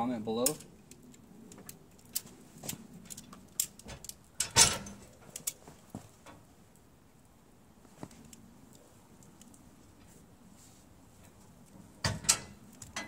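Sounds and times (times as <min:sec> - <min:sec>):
metal buckles clicking and rattling: 0:00.4 - 0:06.5, 0:11.2 - 0:13.0.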